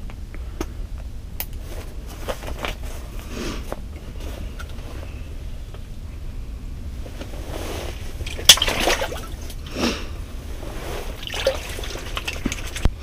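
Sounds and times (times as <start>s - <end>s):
steady low rumble: 0.0s - 13.0s
water splashing and sloshing: 7.6s - 9.7s, 10.6s - 13.0s
fish slapping: 8.3s - 9.6s, 11.1s - 12.9s.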